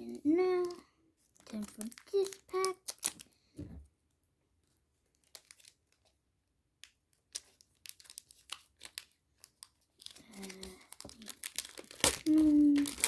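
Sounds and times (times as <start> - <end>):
foil wrapper crinkling: 0.5 - 3.4, 5.1 - 6.1, 7.2 - 13.0
soft low thump: 3.6 - 3.9.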